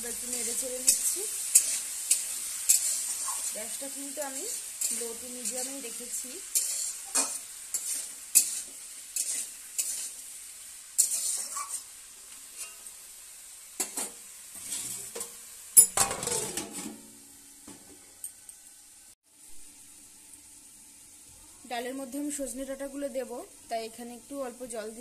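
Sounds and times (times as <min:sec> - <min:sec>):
spatula scraping metal pan: 0:00.0 - 0:10.2, 0:11.0 - 0:11.9, 0:12.5 - 0:12.9, 0:13.8 - 0:15.4
vegetables sizzling in oil: 0:00.0 - 0:25.0
metal lid clanging: 0:14.8 - 0:17.0.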